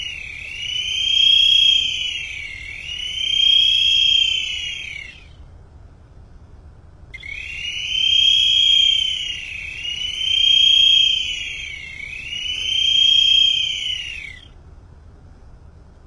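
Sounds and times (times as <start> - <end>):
boatswain's pipes shrill whistle: 0.0 - 5.4, 7.2 - 14.6.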